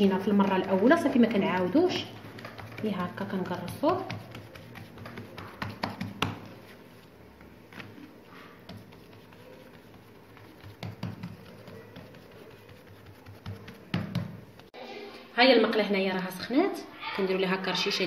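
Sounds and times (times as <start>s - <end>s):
hands patting dough: 0.0s - 14.7s.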